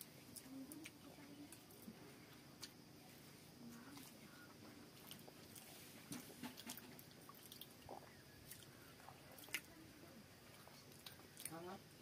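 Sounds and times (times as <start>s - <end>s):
faint chewing: 3.7s - 9.8s, 10.4s - 11.6s.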